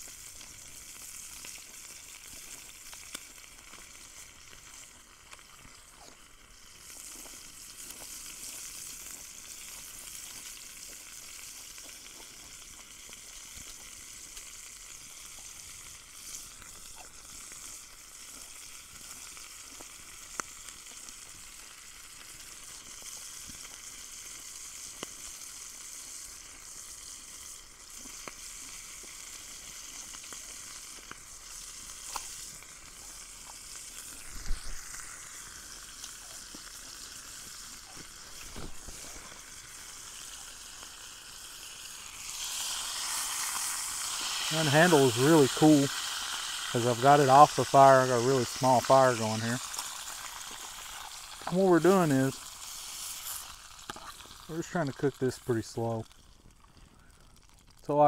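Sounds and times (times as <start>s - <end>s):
meat sizzling in a pan: 0.0s - 58.0s.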